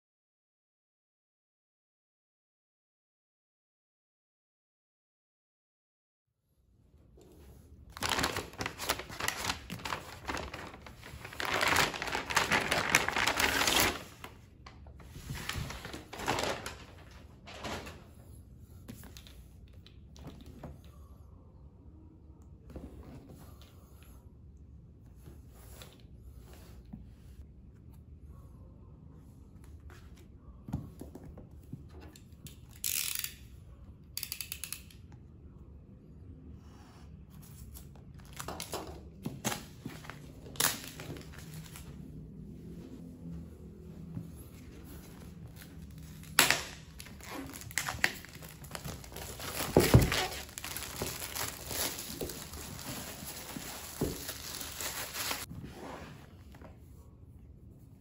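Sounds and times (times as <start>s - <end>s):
plastic shrink wrap tearing and crinkling: 7.9s - 14.4s, 15.2s - 17.2s, 45.4s - 55.5s
cardboard box rustling: 8.0s - 14.1s, 47.4s - 55.5s.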